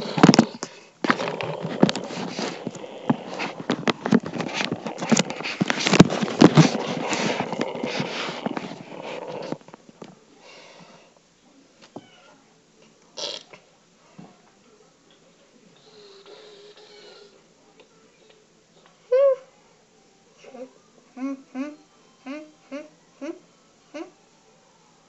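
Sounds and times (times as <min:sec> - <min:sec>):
microphone handling noise: 0:00.0 - 0:09.8.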